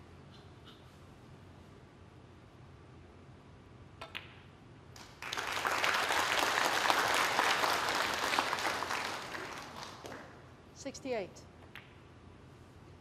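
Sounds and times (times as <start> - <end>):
snooker balls clicking: 4.0 - 4.5, 11.6 - 12.1
audience applause: 5.2 - 10.3.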